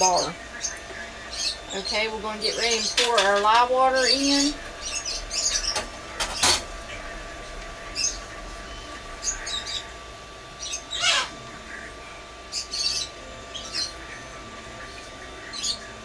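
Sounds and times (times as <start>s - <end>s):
small bird chirping: 12.5s - 14.3s.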